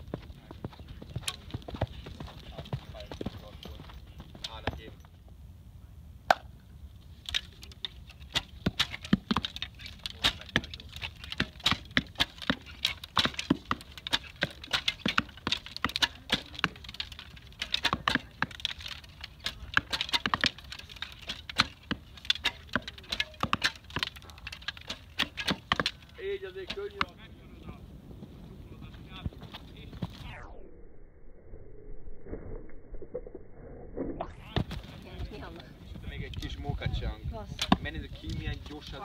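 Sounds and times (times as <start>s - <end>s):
low rumble: 27.2s - 37.6s.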